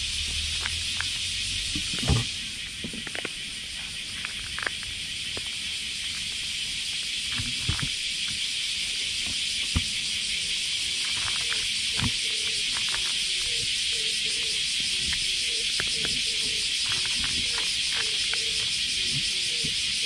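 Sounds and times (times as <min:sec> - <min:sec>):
cicadas droning: 0:00.0 - 0:20.0
cat crunching dry kibble: 0:02.9 - 0:05.5.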